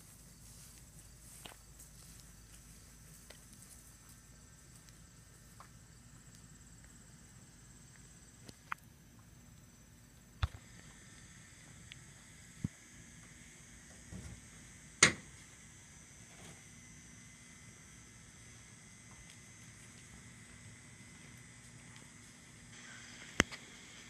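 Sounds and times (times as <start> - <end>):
footsteps on pavement: 0.0 - 6.9
high-pitched insect drone: 0.0 - 24.0.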